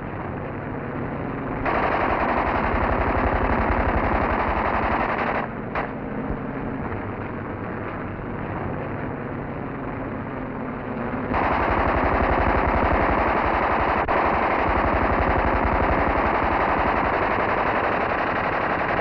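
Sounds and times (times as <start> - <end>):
rapid automatic gunfire: 1.6 - 6.0, 11.3 - 19.0.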